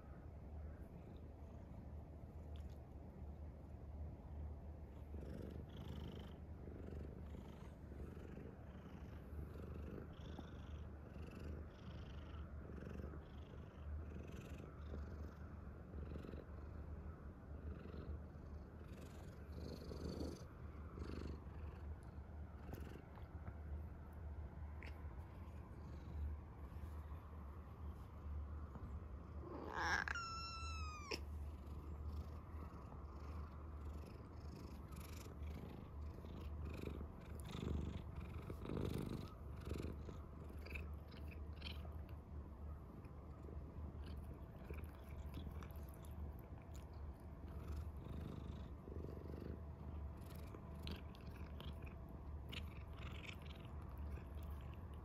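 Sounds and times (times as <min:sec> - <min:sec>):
cat purring: 0:00.0 - 0:55.0
cat meow: 0:29.4 - 0:31.3.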